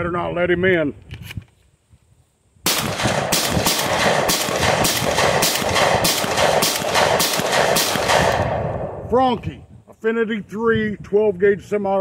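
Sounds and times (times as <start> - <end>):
shotgun fired rapidly: 2.7 - 8.9.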